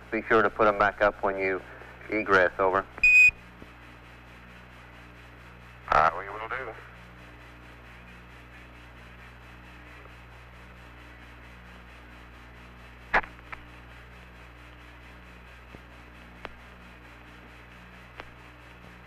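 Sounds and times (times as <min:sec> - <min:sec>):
radio hiss and hum: 0:00.0 - 0:19.0
radio clicks: 0:13.2 - 0:13.7.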